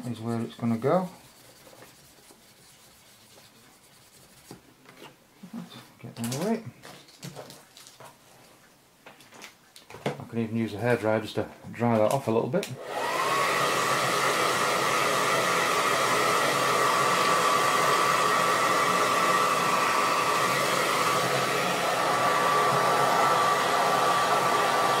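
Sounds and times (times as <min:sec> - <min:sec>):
hairdryer blowing: 0:12.8 - 0:25.0.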